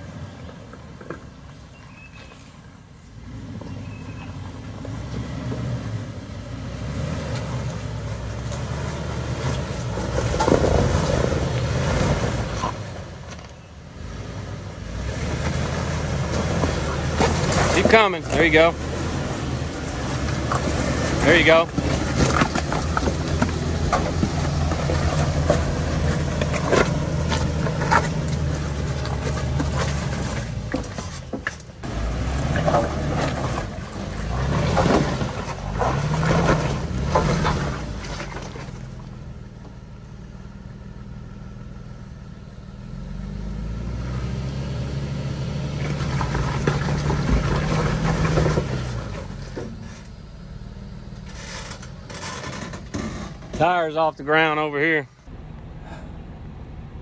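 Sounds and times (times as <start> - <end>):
engine revving under load: 3.0 - 39.4, 42.6 - 57.0
knocks and scrapes on rocks: 8.4 - 13.6, 15.3 - 39.1, 45.8 - 50.2, 51.2 - 54.9.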